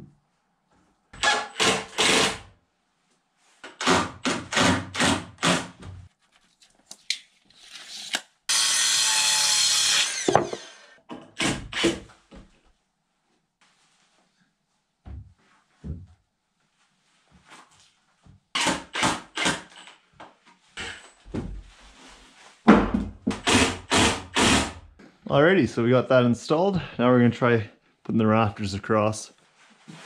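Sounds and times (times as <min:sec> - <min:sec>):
drill driving screws: 0:01.2 - 0:02.5, 0:03.7 - 0:05.8, 0:08.5 - 0:12.0, 0:18.6 - 0:20.0, 0:23.3 - 0:24.8
circular saw cutting board: 0:08.5 - 0:11.0.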